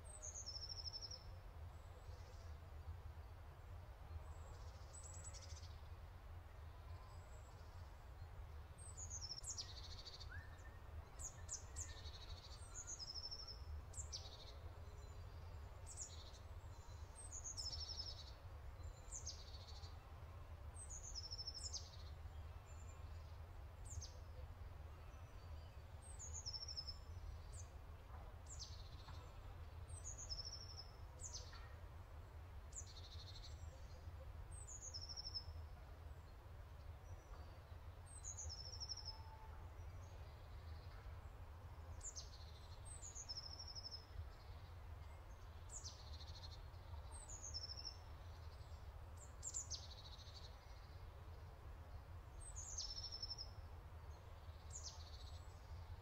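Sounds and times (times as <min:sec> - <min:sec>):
small birds chirping: 0:52.4 - 0:56.0.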